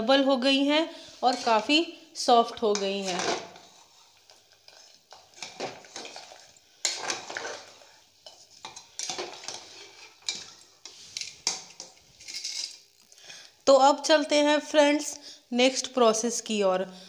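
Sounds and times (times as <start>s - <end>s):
spoon scraping a metal pot: 1.2s - 1.8s, 2.6s - 12.9s.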